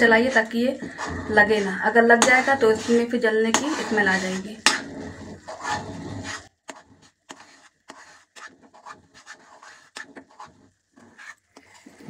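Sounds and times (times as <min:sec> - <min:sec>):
metal spoon scraping pan: 0:00.0 - 0:12.0.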